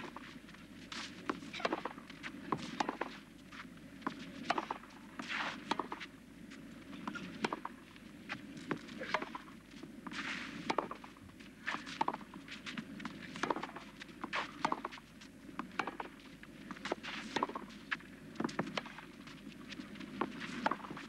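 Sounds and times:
shoes sliding on clay: 0:00.0 - 0:04.6, 0:05.2 - 0:06.7, 0:10.1 - 0:15.0, 0:16.7 - 0:17.9, 0:18.7 - 0:21.0
tennis ball struck by racket: 0:02.6 - 0:03.1, 0:14.4 - 0:15.0, 0:15.7 - 0:16.1.

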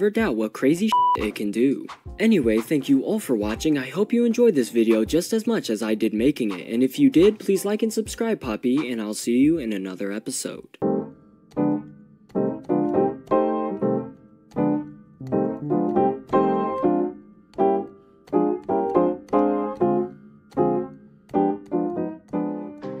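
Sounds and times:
keyboard playing melody and chords: 0:10.8 - 0:23.0.

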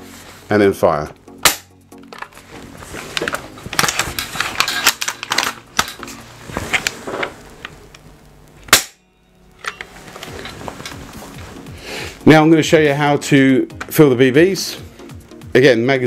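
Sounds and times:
rifle action clicks and rattles: 0:03.2 - 0:06.1.

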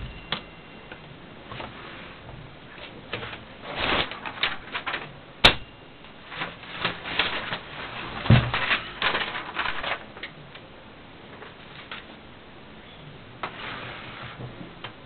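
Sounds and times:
typewriter clicks and rattles: 0:03.2 - 0:05.6, 0:06.4 - 0:10.4.

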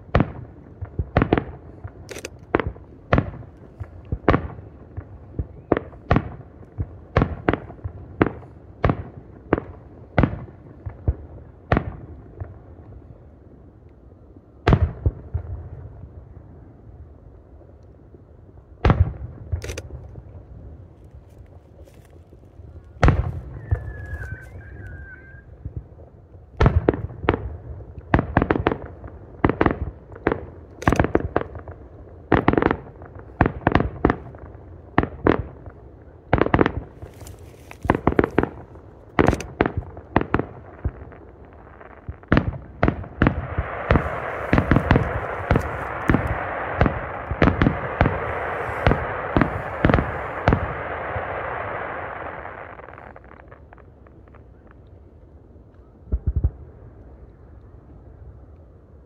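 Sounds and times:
firework crackle: 0:19.6 - 0:25.9, 0:36.3 - 0:55.1
firework shells bursting: 0:43.2 - 0:54.2.

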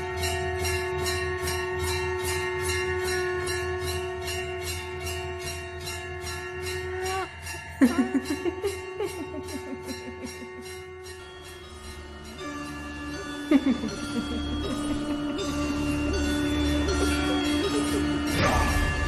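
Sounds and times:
steady jingling beat: 0:00.0 - 0:19.0
held drone-like tone: 0:08.0 - 0:19.0.

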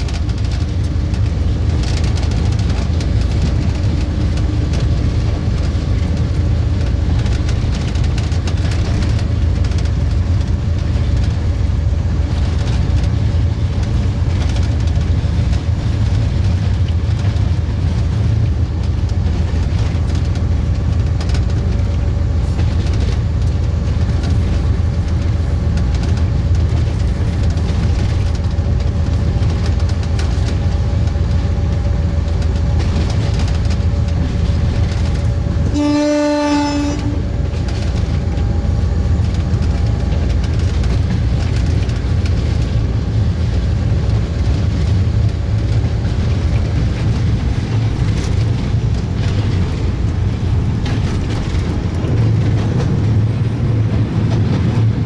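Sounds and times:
locomotive engine and wheels rumbling: 0:00.0 - 0:55.0
train horn blast: 0:35.6 - 0:37.5.

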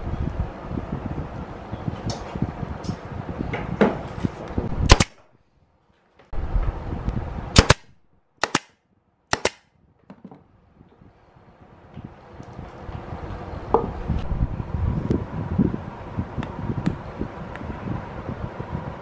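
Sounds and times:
nail gun firing: 0:04.9 - 0:05.2, 0:07.6 - 0:09.7
workshop noise: 0:07.5 - 0:10.5.

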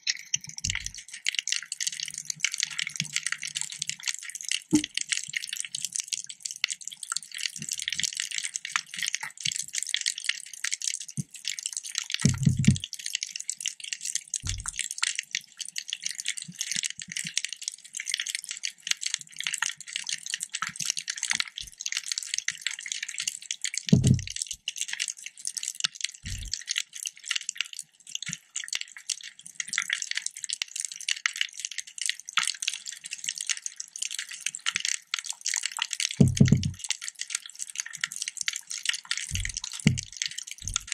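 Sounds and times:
underwater reef crackling: 0:00.0 - 0:40.9
low thumps: 0:24.0 - 0:24.3, 0:36.2 - 0:36.8.

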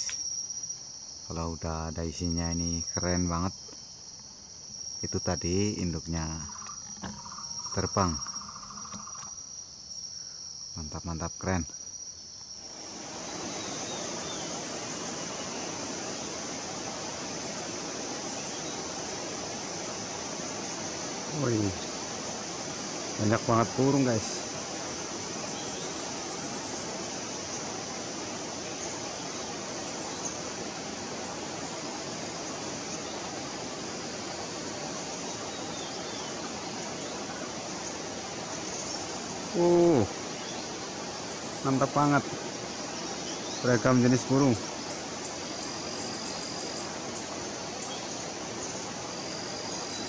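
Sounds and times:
forest ambience rushing hiss: 0:00.0 - 0:50.0
high-pitched insect drone: 0:00.0 - 0:50.0
faint bird chirps: 0:05.0 - 0:12.2, 0:13.2 - 0:16.4
falling bird call: 0:06.4 - 0:09.4.

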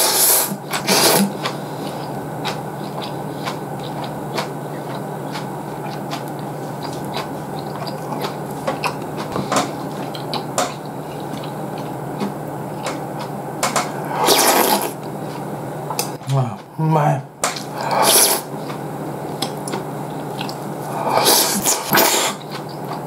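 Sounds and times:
mouth eating sounds: 0:00.0 - 0:16.8, 0:17.5 - 0:23.0
steady background hum: 0:00.0 - 0:23.0
loud slurp of broth: 0:14.2 - 0:15.0.

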